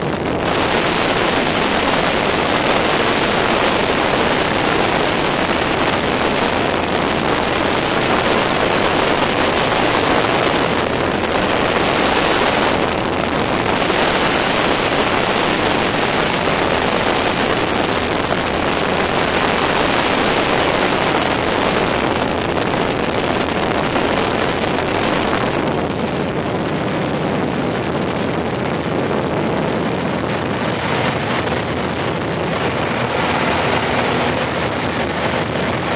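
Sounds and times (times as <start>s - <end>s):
propeller plane engine droning: 0.0s - 35.9s
wind rushing: 0.0s - 35.9s.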